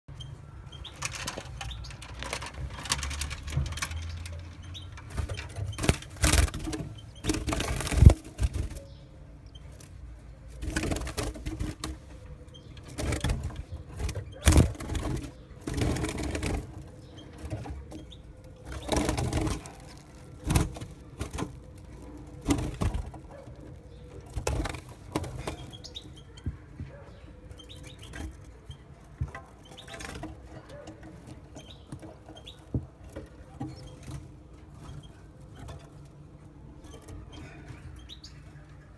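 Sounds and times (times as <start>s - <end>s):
bird fluttering in a cage: 0.8s - 9.0s, 9.6s - 26.5s.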